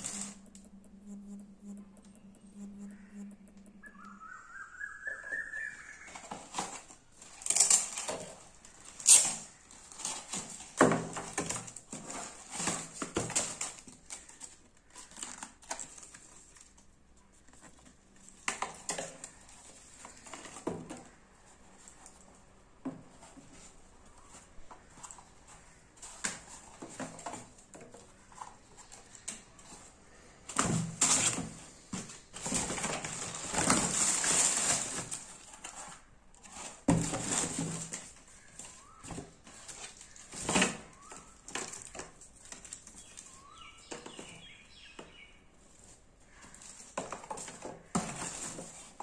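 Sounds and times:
tissue paper rustling and crinkling: 28.3s - 43.6s.

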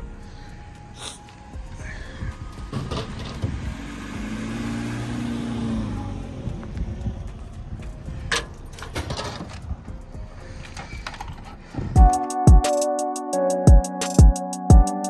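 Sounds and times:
car driving past: 2.5s - 8.5s.

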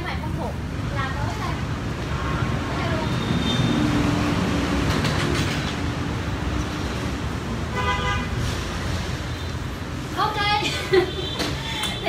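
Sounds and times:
street traffic rumbling: 0.0s - 12.0s
vehicle horn toot: 7.7s - 8.4s.

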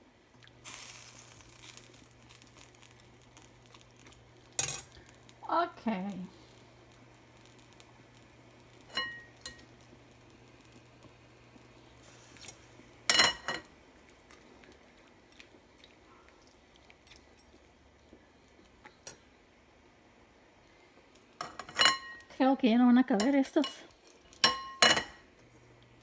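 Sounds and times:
metal tongs clinking on bowl and pan: 4.6s - 5.0s, 8.9s - 9.7s, 12.4s - 13.7s, 19.0s - 19.2s, 21.4s - 22.3s, 23.2s - 25.2s.

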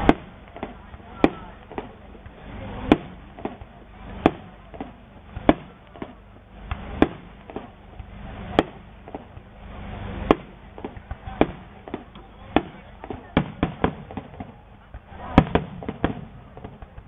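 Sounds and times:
small firework pops: 0.0s - 9.6s, 10.2s - 17.0s
fireworks bangs: 0.0s - 17.0s.

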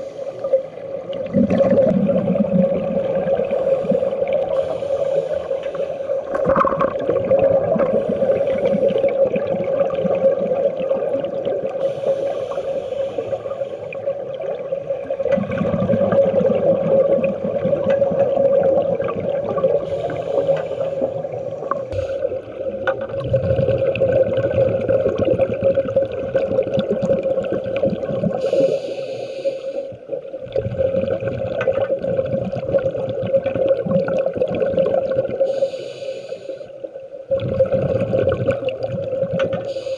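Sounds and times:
steady underwater hum: 0.0s - 39.9s
breath hissing through regulator: 3.4s - 6.3s, 11.8s - 14.0s, 19.8s - 22.5s, 28.4s - 30.0s, 35.4s - 36.8s, 39.6s - 39.9s.

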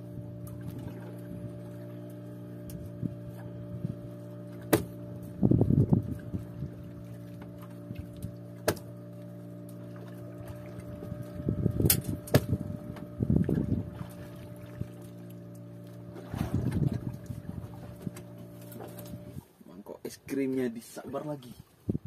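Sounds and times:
boat engine running: 0.0s - 19.6s
knocks against wooden boat: 4.6s - 5.0s, 8.6s - 8.9s, 11.8s - 13.1s.

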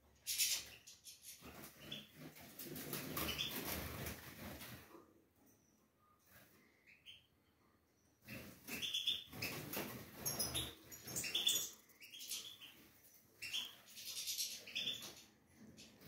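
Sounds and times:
finches chirping: 8.2s - 16.0s.

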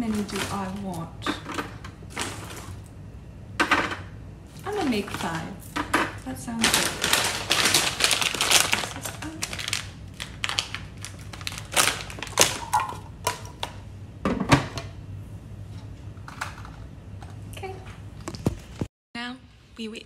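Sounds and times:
plastic bag crinkling: 0.0s - 1.4s, 4.6s - 13.0s
frozen dumplings knocking on plastic: 4.8s - 13.7s.

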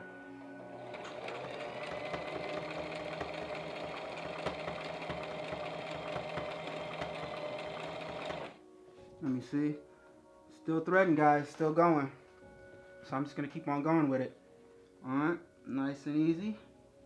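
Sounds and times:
sewing machine stitching: 0.7s - 8.6s.

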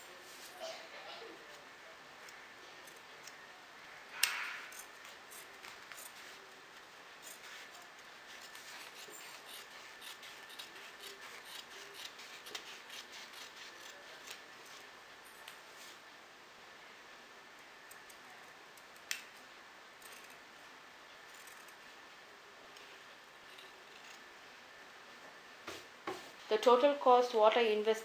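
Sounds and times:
scissors snipping fabric: 8.4s - 14.9s.

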